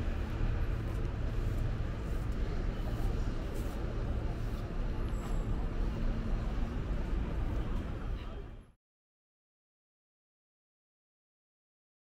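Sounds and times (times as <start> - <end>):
road traffic rumble: 0.0 - 8.7
hum of background activity: 0.0 - 8.8.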